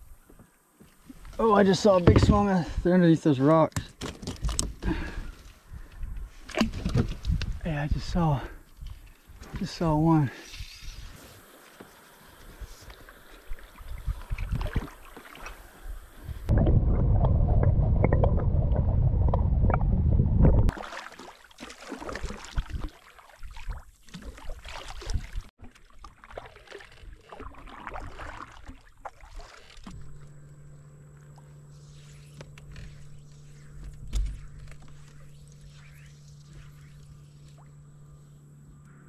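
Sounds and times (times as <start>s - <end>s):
paddle splashing water: 11.2s - 16.5s, 20.7s - 33.6s.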